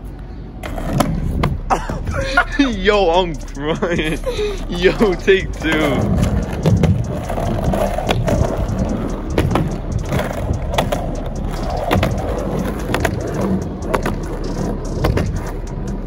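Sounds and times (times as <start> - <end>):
skateboard wheels rolling on concrete: 0.0 - 16.0
skateboard clacks: 0.6 - 2.2, 4.9 - 16.0.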